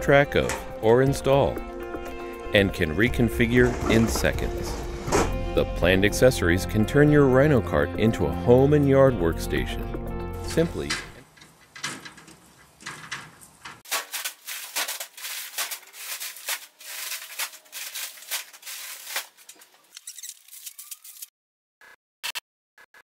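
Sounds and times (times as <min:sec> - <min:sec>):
plastic bags rustling and knocking: 0:10.8 - 0:20.8.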